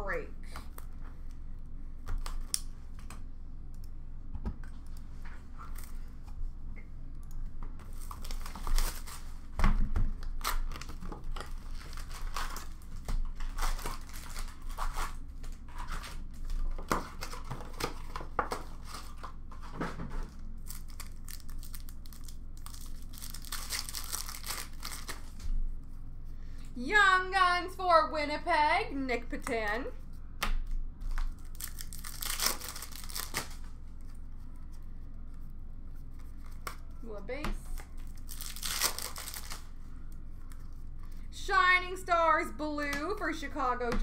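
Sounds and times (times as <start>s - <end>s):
foil packs being handled: 7.8s - 9.5s, 10.2s - 25.5s, 31.1s - 33.7s, 37.8s - 39.7s
shrink wrap crinkling and tearing: 7.8s - 25.6s, 29.8s - 37.0s, 37.6s - 41.3s.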